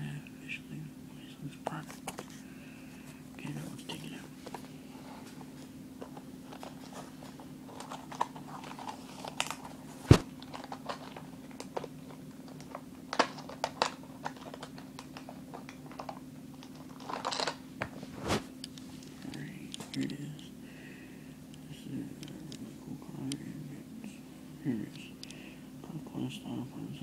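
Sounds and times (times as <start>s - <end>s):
packaging crinkling and rustling: 6.0s - 17.6s
packaging clicks: 6.5s - 17.6s.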